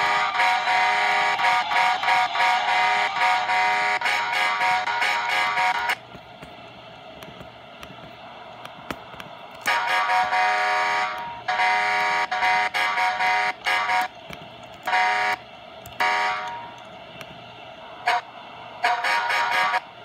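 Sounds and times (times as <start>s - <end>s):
air horn blasts: 0.0s - 6.0s, 9.6s - 14.1s, 14.8s - 15.4s, 16.0s - 16.7s, 18.0s - 20.0s.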